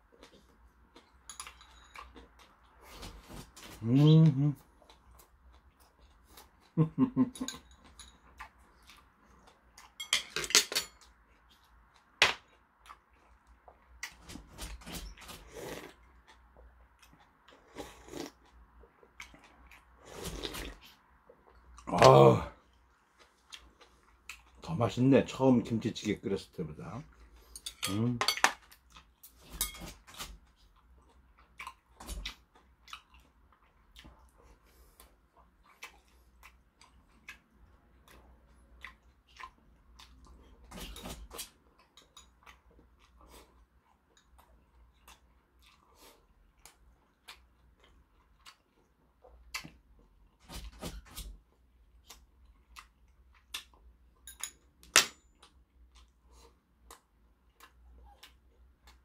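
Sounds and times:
man chewing food: 0.0s - 24.8s, 27.0s - 59.0s.

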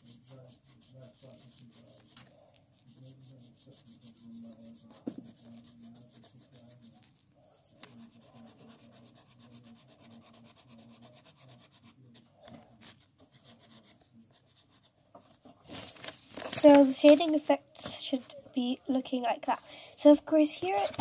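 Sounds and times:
pencil shading on paper: 0.0s - 15.4s.

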